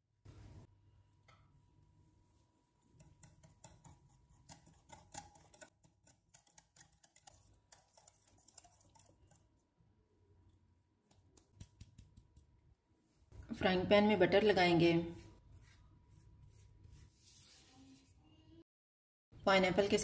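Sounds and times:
whisk clicking against glass bowl: 2.9s - 9.5s.

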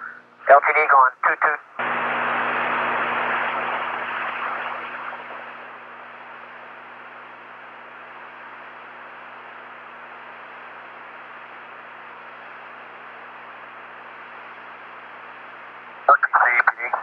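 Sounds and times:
radio hiss: 0.0s - 6.9s, 16.0s - 17.0s
low electrical hum: 0.0s - 17.0s.

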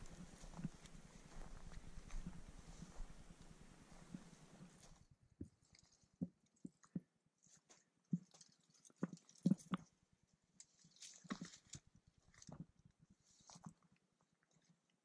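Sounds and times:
dry stalks rustling: 0.0s - 5.0s
footsteps crunching through dry grass: 0.0s - 5.0s.

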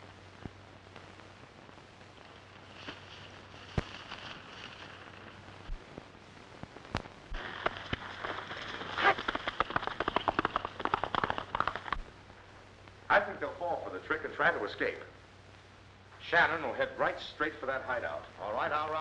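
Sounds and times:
sharp clicks: 6.8s - 12.1s
horse hoofbeats galloping: 7.3s - 12.0s.

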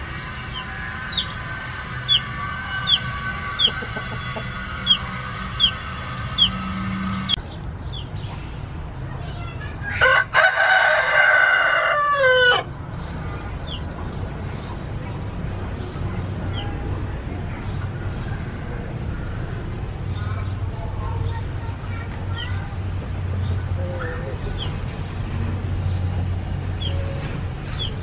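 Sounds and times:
rooster crowing: 9.9s - 12.7s.

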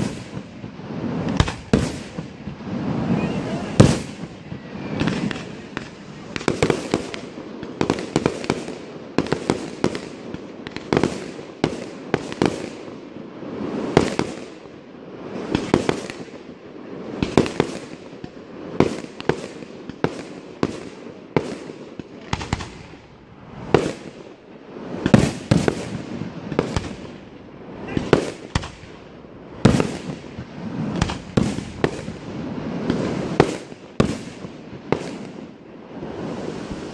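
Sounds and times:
sharp firework bangs: 0.0s - 12.8s, 18.7s - 24.2s, 24.9s - 36.9s
hiss of spark fountains: 36.0s - 36.9s.

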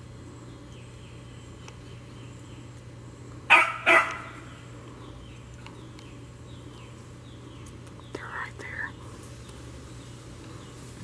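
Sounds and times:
dog barking: 3.5s - 4.4s.

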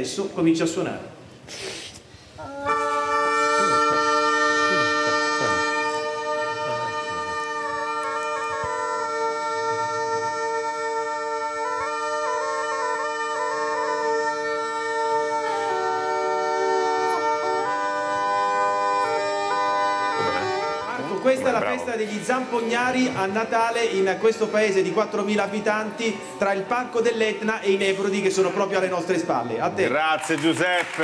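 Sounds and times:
bagpipe playing: 2.4s - 26.4s.

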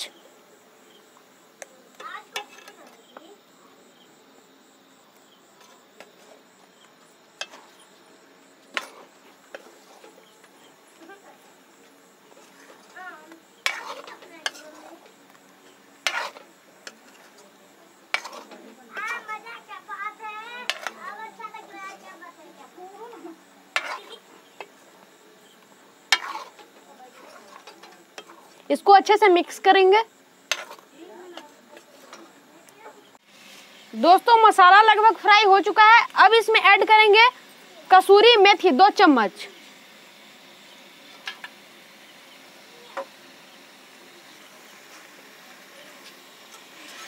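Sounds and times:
faint sizzle: 0.0s - 47.0s
metal spatula scraping a pan: 2.3s - 3.0s, 7.4s - 7.9s, 8.7s - 10.8s, 13.6s - 15.1s, 16.0s - 17.4s, 18.1s - 19.4s, 20.6s - 21.0s, 23.7s - 24.3s, 26.1s - 28.6s, 30.5s - 32.4s, 46.4s - 47.0s.

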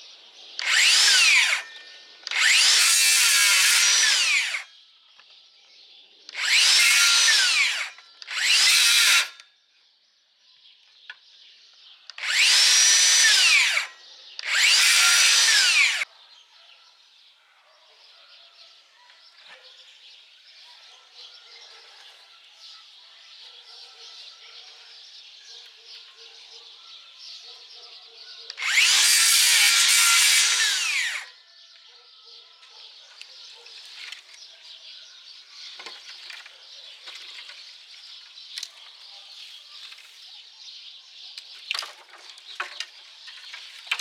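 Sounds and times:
circular saw cutting branches: 0.6s - 4.7s, 6.3s - 9.4s, 12.1s - 16.1s, 28.5s - 31.4s.

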